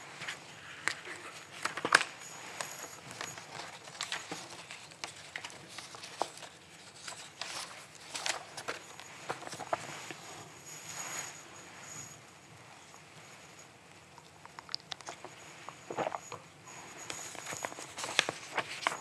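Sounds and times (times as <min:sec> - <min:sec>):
paper rustling: 0:00.0 - 0:10.4, 0:15.0 - 0:19.0.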